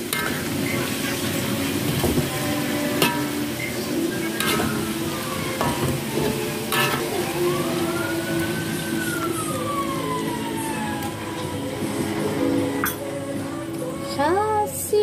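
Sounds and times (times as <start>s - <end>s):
metal spatula scraping a wok: 0.0s - 5.0s, 5.6s - 7.2s
food sizzling: 0.0s - 15.0s.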